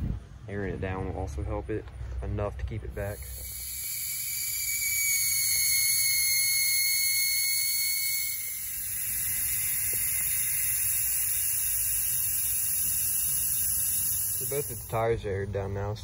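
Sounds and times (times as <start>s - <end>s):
air hissing from tire valve: 3.0s - 15.1s.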